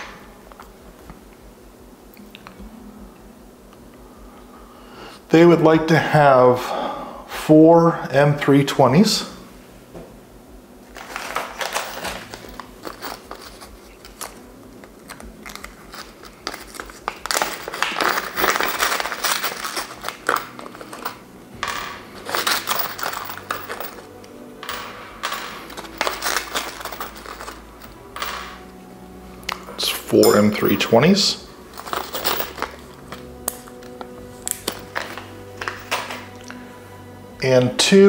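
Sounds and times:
plastic bags crinkling: 0:10.9 - 0:21.2, 0:25.7 - 0:27.7.

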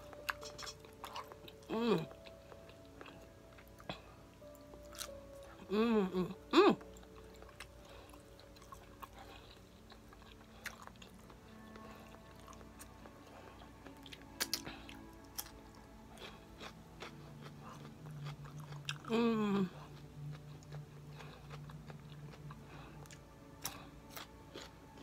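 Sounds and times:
biting and chewing cucumber: 0:06.8 - 0:19.1, 0:19.8 - 0:25.0.

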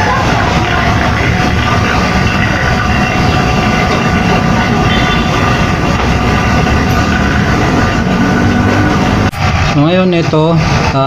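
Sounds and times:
vacuum pump running: 0:00.0 - 0:11.0.

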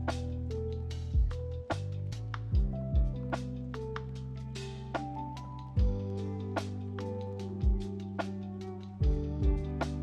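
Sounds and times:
lo-fi music with beat: 0:00.0 - 0:10.0
kick drum thumping: 0:01.2 - 0:01.4, 0:02.5 - 0:03.3, 0:05.8 - 0:06.1, 0:07.6 - 0:07.9, 0:09.0 - 0:09.7.

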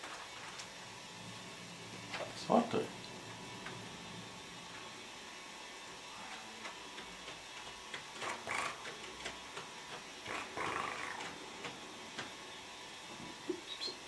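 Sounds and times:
small clicks and scratches: 0:06.3 - 0:12.3.

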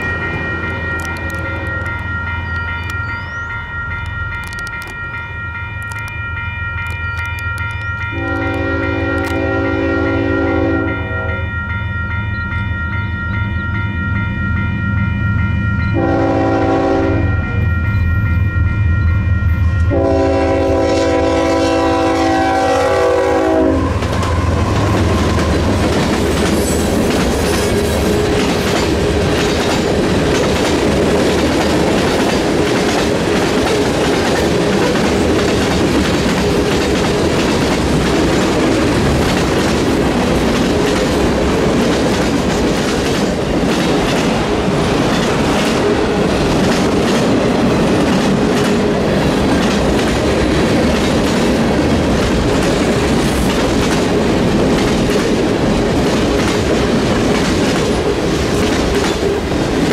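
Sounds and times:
crossing bell dinging: 0:00.0 - 0:41.2
locomotive air horn: 0:08.1 - 0:11.5, 0:16.0 - 0:17.7, 0:19.8 - 0:25.6
train wheels clacking on rails: 0:19.5 - 0:59.9.

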